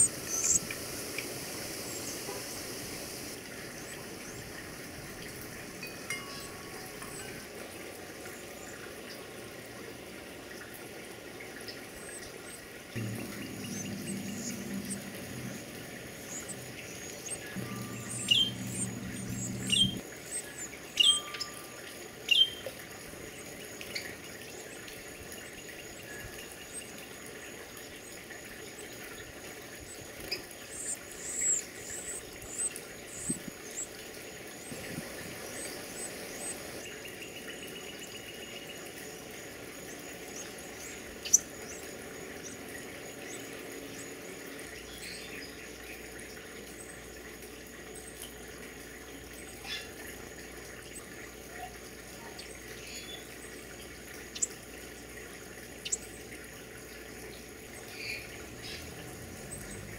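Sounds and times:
steady hiss: 0.0 - 7.6
nestlings chirping: 13.0 - 21.4.

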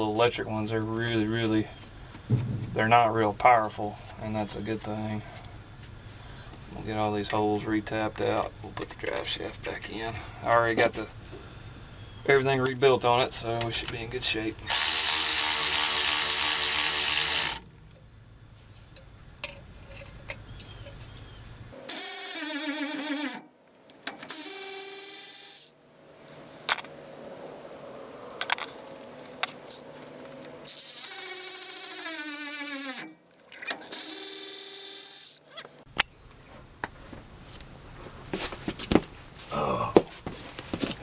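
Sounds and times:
cordless electric ratchet whining: 14.7 - 17.6, 21.9 - 23.4, 24.2 - 25.7, 30.6 - 33.1, 33.9 - 35.4.

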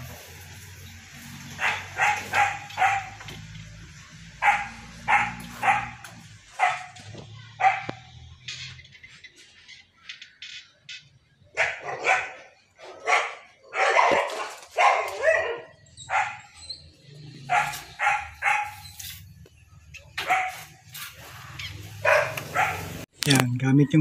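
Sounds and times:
dog barking: 1.6 - 3.3, 4.4 - 8.1, 11.5 - 16.6, 17.3 - 19.0, 20.1 - 20.8, 22.0 - 23.0.

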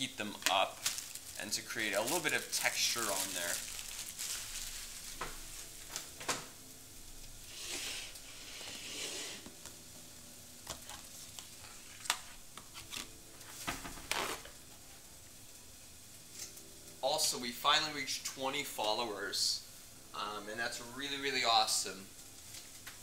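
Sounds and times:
faint steady hum: 0.0 - 23.0
rustling: 0.4 - 6.2.

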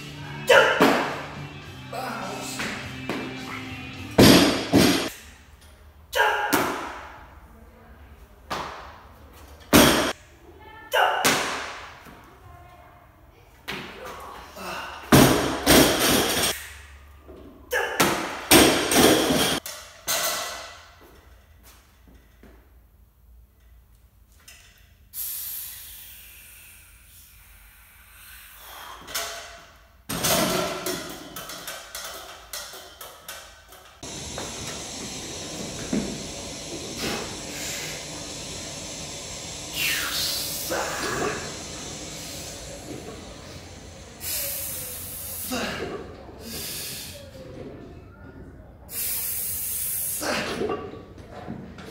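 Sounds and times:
hissing exhale through teeth: 25.2 - 29.2, 34.0 - 45.8, 46.4 - 47.4.

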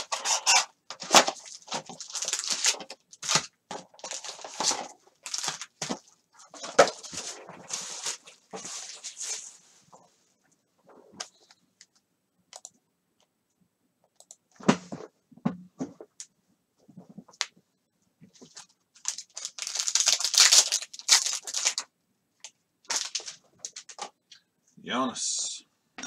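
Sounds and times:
foil wrapper crinkling: 0.0 - 9.4, 18.6 - 21.9, 22.9 - 24.0.

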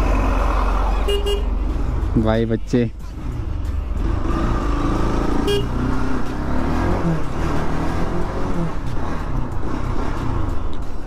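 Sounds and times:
short horn beep: 1.1 - 1.5.

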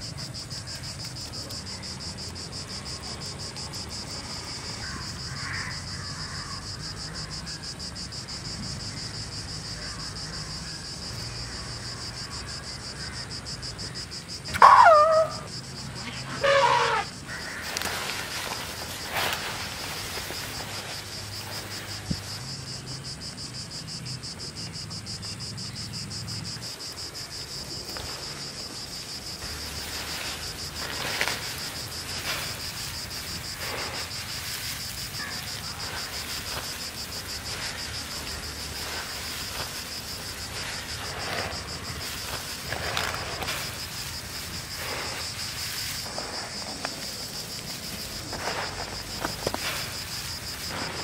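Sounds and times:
insects chirring in a high trill: 0.0 - 51.0
hands rustling food on leaves: 17.4 - 22.4, 27.8 - 51.0.

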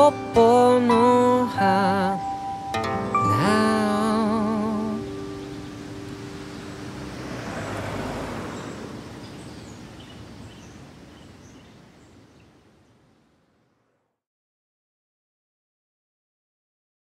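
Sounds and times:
soft rushing noise: 4.3 - 11.1.

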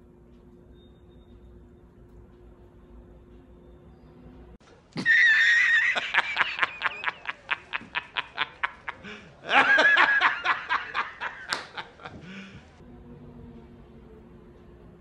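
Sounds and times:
man laughing hysterically: 5.0 - 12.7.

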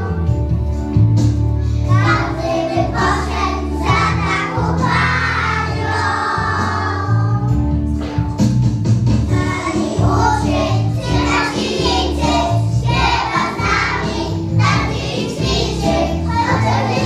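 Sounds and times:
instrumental backing track: 0.0 - 17.0
children singing: 1.9 - 7.5, 9.3 - 17.0.

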